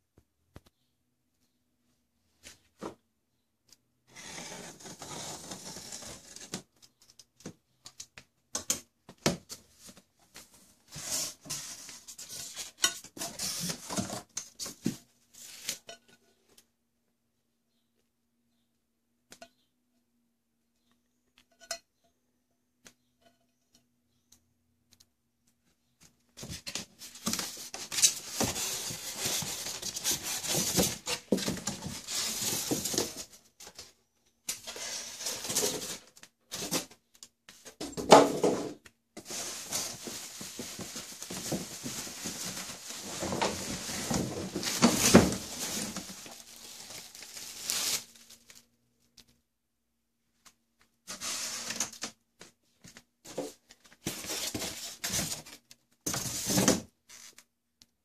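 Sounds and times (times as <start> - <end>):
foam scraping against cardboard: 4.1 - 6.5
plastic bag crackling and rustling: 39.2 - 48.6.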